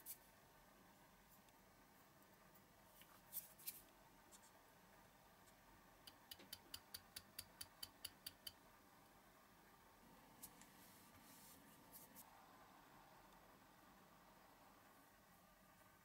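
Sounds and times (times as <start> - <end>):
small ticks: 5.5 - 8.6.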